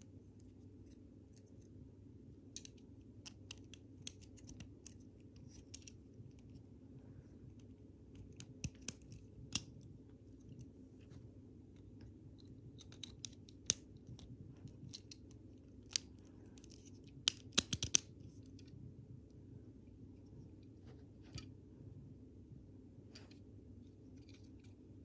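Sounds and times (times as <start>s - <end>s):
faint low hum: 0.0s - 25.0s
plastic pieces clicking together: 12.8s - 18.6s.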